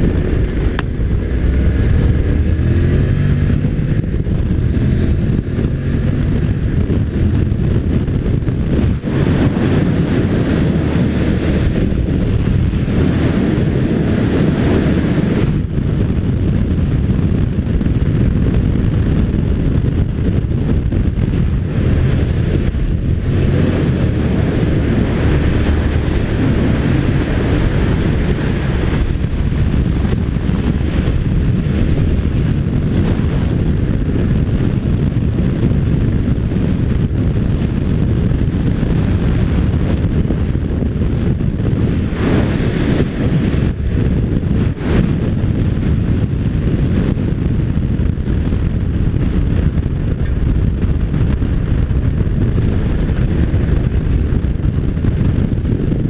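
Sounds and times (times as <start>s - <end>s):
motorcycle engine: 0.0s - 56.0s
wind buffeting microphone: 0.0s - 56.0s.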